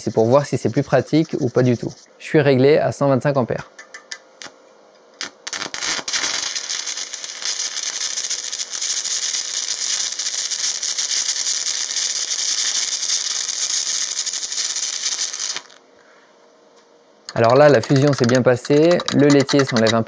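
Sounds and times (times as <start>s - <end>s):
welding arc crackle and hiss: 0.0s - 2.1s, 5.2s - 15.9s, 17.3s - 20.0s
welding arc sputters: 0.0s - 2.1s, 5.2s - 15.8s, 17.3s - 20.0s.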